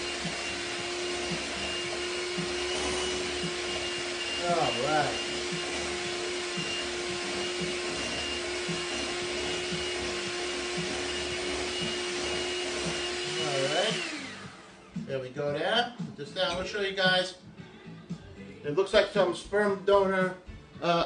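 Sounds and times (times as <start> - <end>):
electric hand mixer whirring: 0.0 - 15.1.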